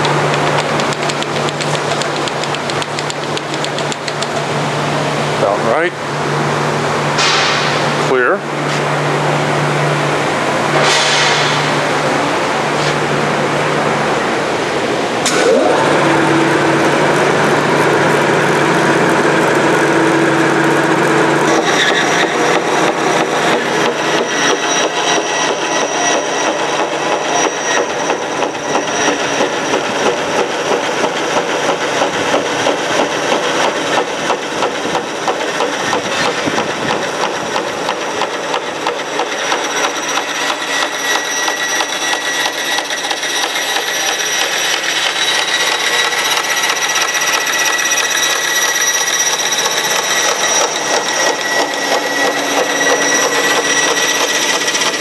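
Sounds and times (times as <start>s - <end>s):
bandsaw high whine: 9.1s - 34.0s, 38.4s - 55.0s.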